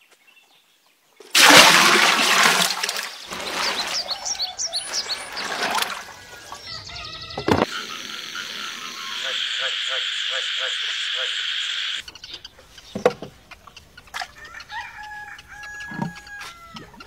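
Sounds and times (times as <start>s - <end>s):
water splashing and sloshing: 1.3s - 7.7s, 14.0s - 14.4s
hands rubbing leaves in water: 1.4s - 6.6s
birds chirping: 2.9s - 17.0s.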